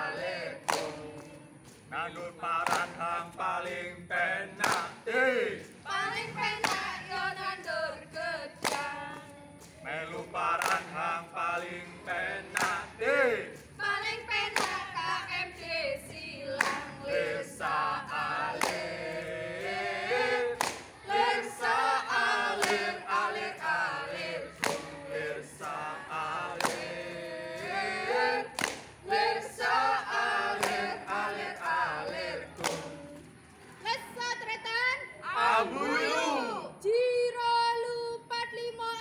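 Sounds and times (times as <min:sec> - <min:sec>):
children singing a cheer in unison: 0:03.6 - 0:33.2.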